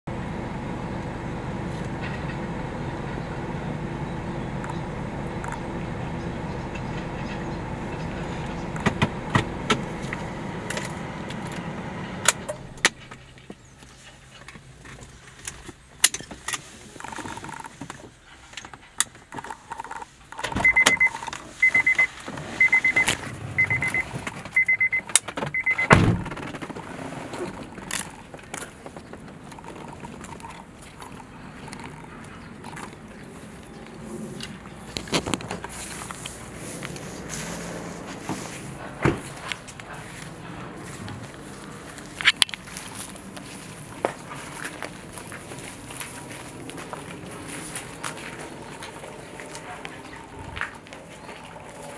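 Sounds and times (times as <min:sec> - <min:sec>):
car engine hum: 0:00.0 - 0:51.9
car warning chime beeping: 0:20.6 - 0:26.0
loud heavy thump: 0:25.8 - 0:26.4.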